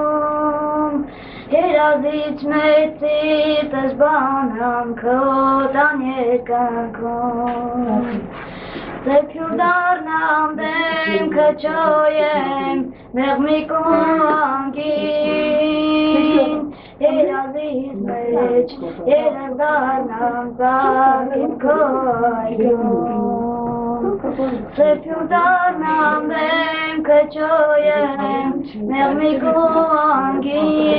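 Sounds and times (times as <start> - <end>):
child singing: 0.0 - 8.2, 9.0 - 30.9.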